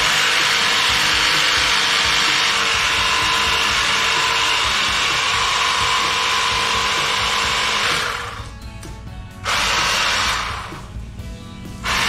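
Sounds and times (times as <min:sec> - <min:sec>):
pressure washer motor whine: 0:00.0 - 0:08.5, 0:11.8 - 0:12.0.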